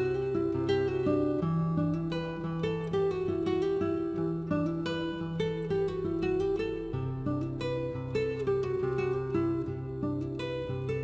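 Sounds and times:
plucked acoustic guitar melody: 0.0s - 11.0s.

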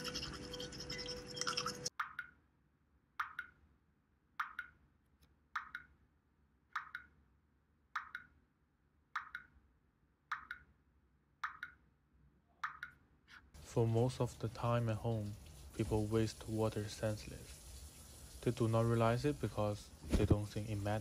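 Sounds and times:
water dripping: 1.3s - 2.4s, 3.2s - 3.6s, 4.4s - 4.8s, 5.6s - 5.9s, 6.8s - 7.2s, 8.0s - 8.3s, 13.6s - 21.0s.

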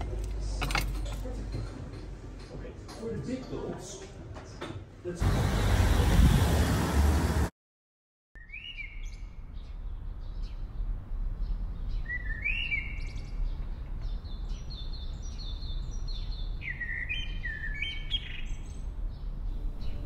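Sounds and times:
songbird singing: 8.4s - 20.0s.

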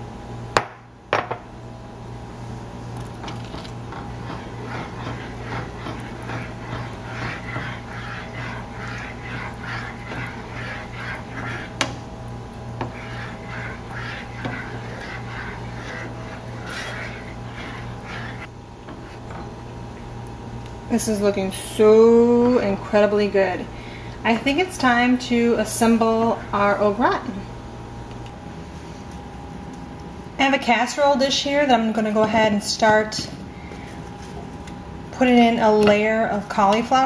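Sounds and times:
steady low hum: 0.0s - 37.0s
spoon stirring thick sauce: 3.0s - 19.4s.

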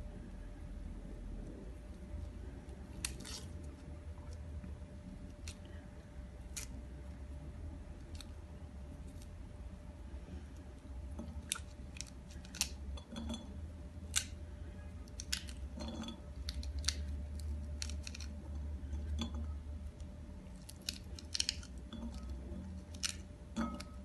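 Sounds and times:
low hum: 0.0s - 24.0s
crisp clicks and crackles: 11.2s - 12.8s, 14.1s - 14.4s, 15.0s - 19.1s, 20.0s - 24.0s.

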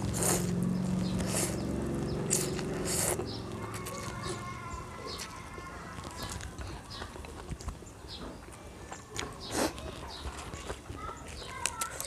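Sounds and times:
person slurping noodles: 0.0s - 4.0s
chewing: 0.0s - 12.0s.

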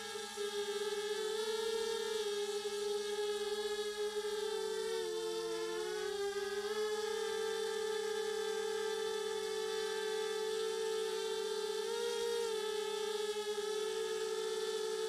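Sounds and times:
drone motors humming: 0.0s - 15.0s.

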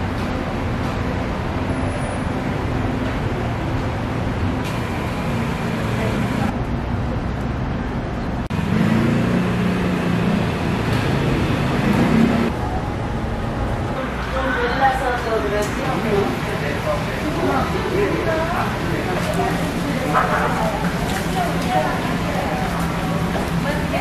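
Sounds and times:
traffic noise: 0.0s - 24.0s
people talking: 5.7s - 6.6s, 13.9s - 24.0s.

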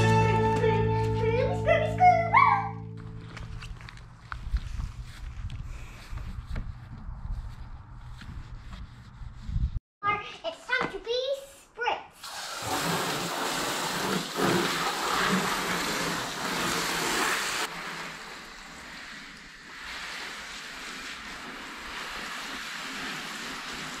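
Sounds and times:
hose water spraying on car: 12.2s - 24.0s.

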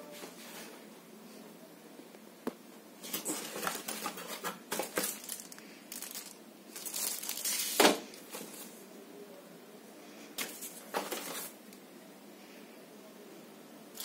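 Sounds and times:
cardboard and plastic crinkling: 3.0s - 8.8s, 10.4s - 11.6s.

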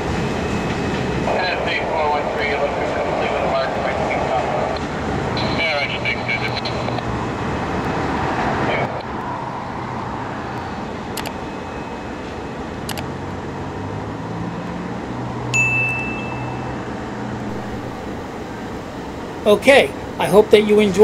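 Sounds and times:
freight train passing: 0.0s - 21.0s
notification bell chime: 15.6s - 16.8s.

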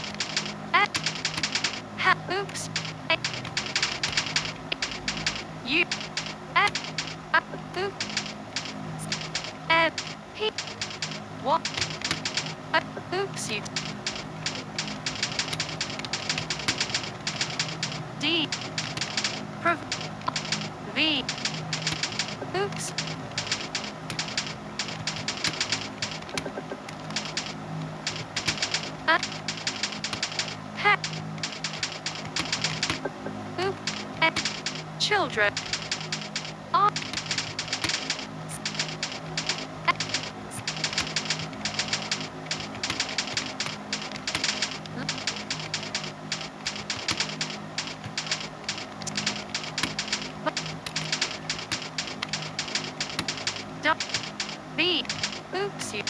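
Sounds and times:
keyboard keys clicking: 0.0s - 56.0s
low hum: 0.0s - 56.0s.

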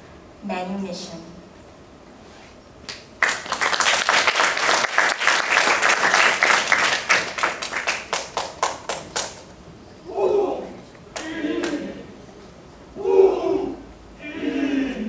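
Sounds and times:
audience applauding: 3.2s - 9.4s.

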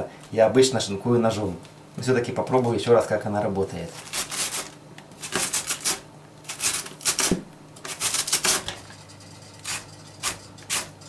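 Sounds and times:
cabbage shredder scraping strokes: 3.9s - 8.7s, 9.6s - 11.0s.

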